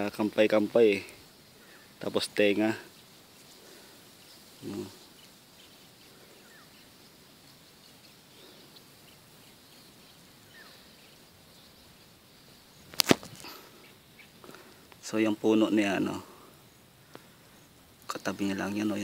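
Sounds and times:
distant bird chirps: 0:00.0 - 0:19.0
person murmuring: 0:04.6 - 0:05.0.

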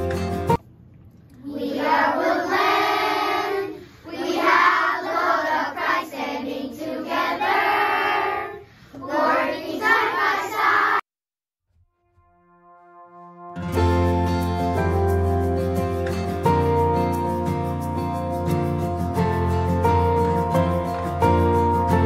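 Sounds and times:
children singing in unison: 0:01.5 - 0:11.0.

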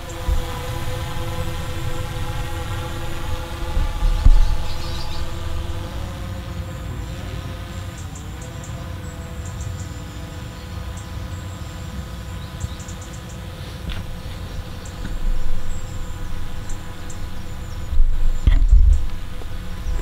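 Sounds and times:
wind rumble on microphone: 0:00.0 - 0:06.9, 0:13.4 - 0:20.0
drone whine: 0:00.0 - 0:20.0.

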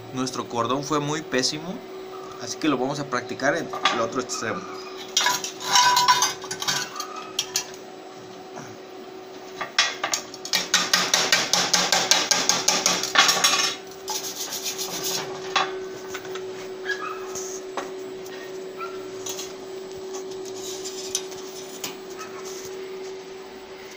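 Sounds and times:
wire brush scraping metal: 0:04.8 - 0:07.7, 0:13.0 - 0:15.5, 0:19.1 - 0:22.8.

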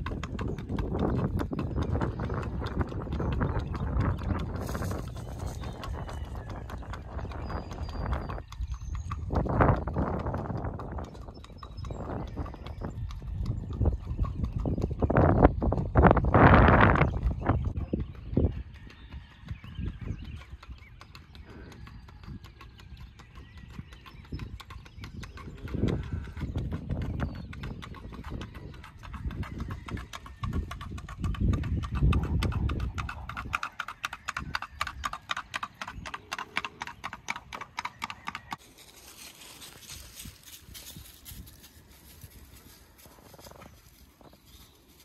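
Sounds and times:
horse hooves on pavement: 0:00.0 - 0:45.0.

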